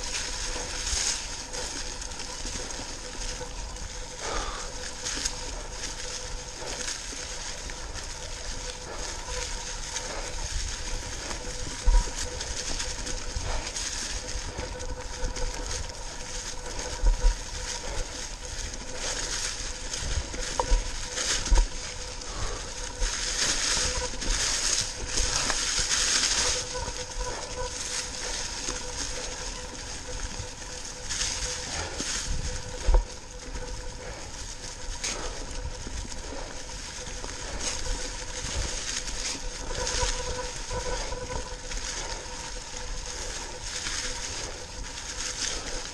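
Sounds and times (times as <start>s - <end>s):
bike tyres crunching dry leaves: 0.0s - 45.9s.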